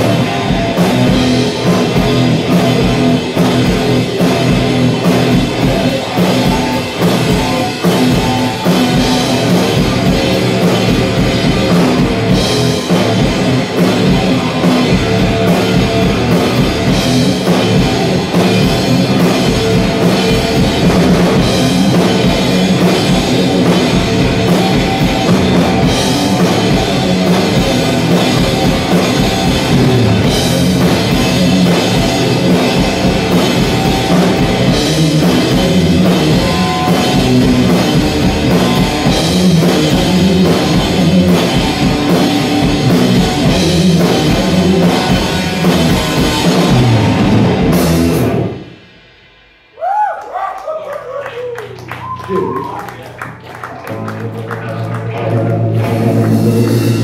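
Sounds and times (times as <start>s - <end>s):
electric guitar riff: 0.0s - 48.9s, 51.6s - 57.0s
driving drums: 0.0s - 57.0s.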